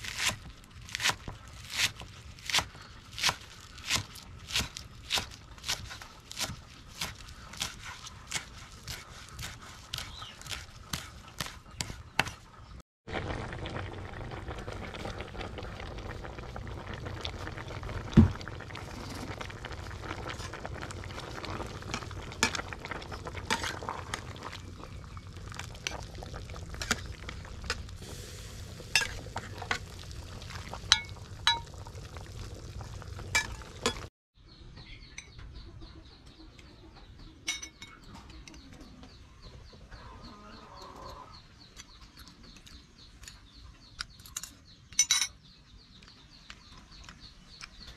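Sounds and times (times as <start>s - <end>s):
birds chirping: 2.1s - 12.8s, 14.4s - 47.9s
boiling pot hissing: 13.1s - 34.1s
metal ladle scraping a pot: 20.3s - 24.9s, 25.5s - 29.9s.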